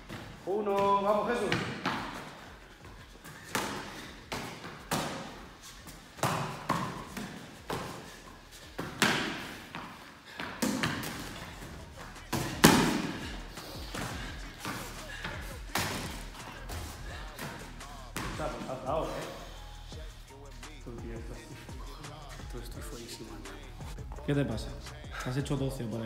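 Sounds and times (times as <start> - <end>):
boxing punches thudding: 3.0 - 9.7, 10.6 - 19.0.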